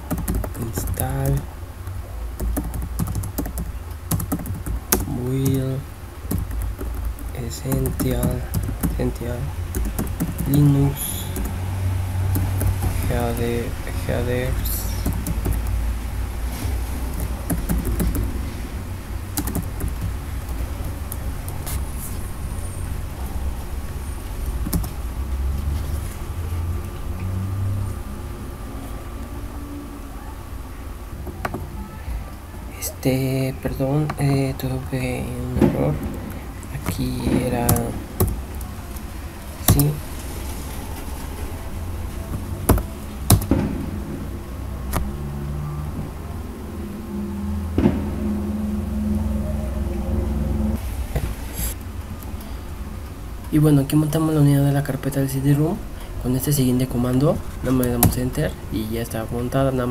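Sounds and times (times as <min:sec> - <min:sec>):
keyboard clicks: 0:00.0 - 0:01.4, 0:02.4 - 0:05.6, 0:06.3 - 0:11.6, 0:12.3 - 0:13.4, 0:14.8 - 0:15.8, 0:17.1 - 0:18.3, 0:19.4 - 0:21.8, 0:24.4 - 0:25.0, 0:39.7 - 0:40.0, 0:42.3 - 0:43.6
traffic rumble outside: 0:00.0 - 0:59.9.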